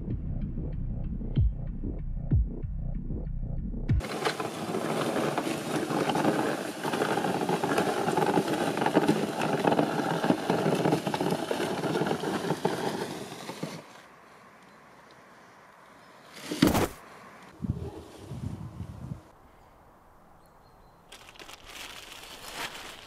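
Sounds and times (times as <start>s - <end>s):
plastic bags rustling and crackling: 21.1s - 23.0s.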